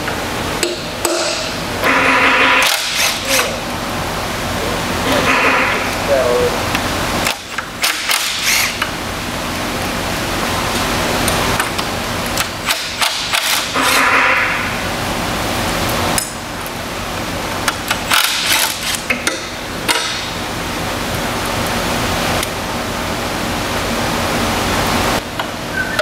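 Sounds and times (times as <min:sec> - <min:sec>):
impact wrench rapid clacking: 0:07.3 - 0:08.8, 0:12.6 - 0:14.0, 0:18.1 - 0:20.2.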